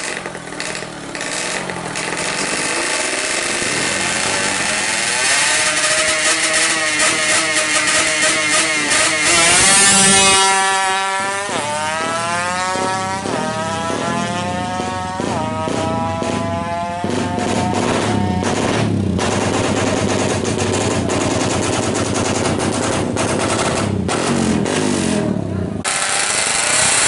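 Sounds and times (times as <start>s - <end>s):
two-stroke engine revving and accelerating: 0.0s - 27.0s.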